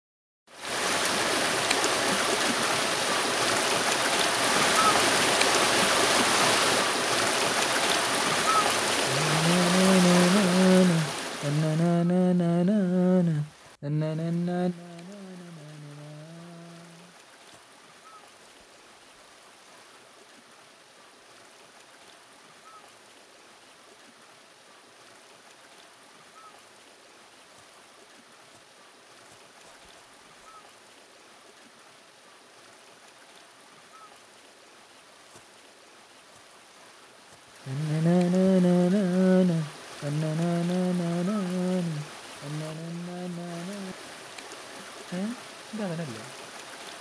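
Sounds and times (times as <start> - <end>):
outdoor background hiss: 0.5 - 47.0
man humming a tune: 9.0 - 17.1, 37.7 - 44.1, 44.8 - 46.4.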